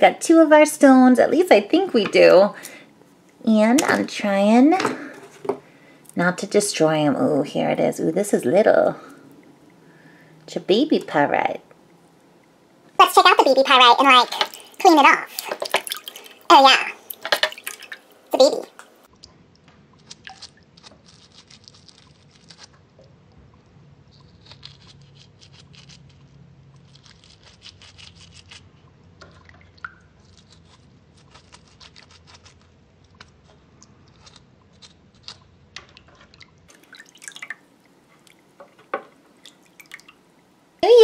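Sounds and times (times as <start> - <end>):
water dripping in glass bowl: 29.3 - 30.1.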